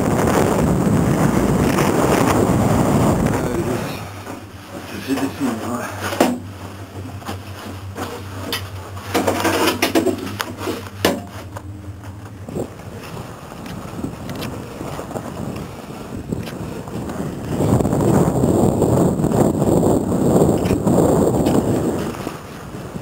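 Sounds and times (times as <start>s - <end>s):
gondola cabin hum: 0.0s - 23.0s
skis scraping over snow: 0.3s - 19.5s, 20.4s - 23.0s
knocks and rattles: 4.2s - 12.2s.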